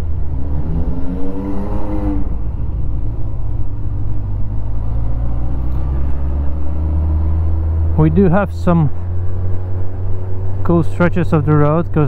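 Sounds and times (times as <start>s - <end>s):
motorcycle engine accelerating: 0.0s - 12.0s
road noise: 0.0s - 12.0s.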